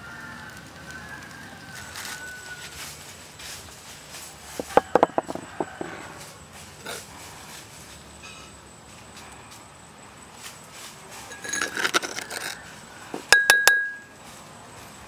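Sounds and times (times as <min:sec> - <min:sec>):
metal spoon clinking on ceramic bowls: 0:11.3 - 0:12.6, 0:13.2 - 0:14.1.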